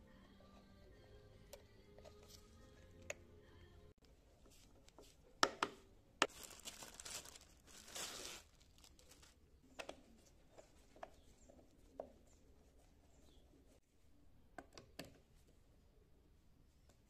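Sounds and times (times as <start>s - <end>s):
crinkling rustle: 6.2s - 9.4s.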